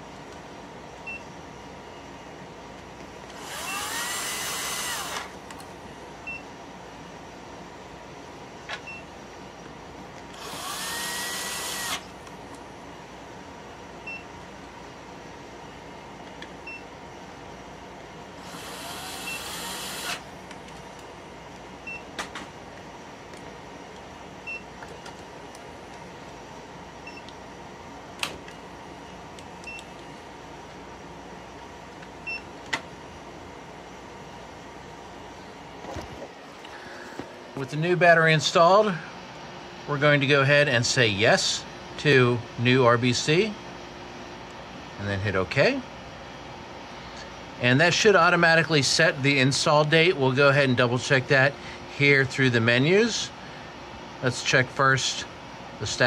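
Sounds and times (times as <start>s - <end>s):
equipment fans humming: 0.0s - 56.0s
power screwdriver motor whine: 3.3s - 5.4s, 10.3s - 12.1s, 18.4s - 20.3s.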